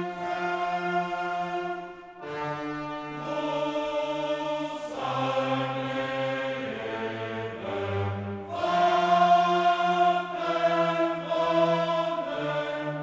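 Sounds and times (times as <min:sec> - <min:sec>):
music of slow held chords: 0:00.0 - 0:13.0.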